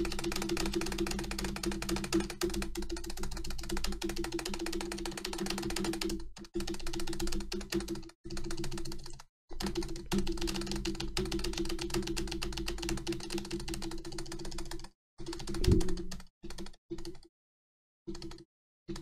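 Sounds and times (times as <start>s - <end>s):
keyboard spacebar clicks: 15.6s - 16.0s.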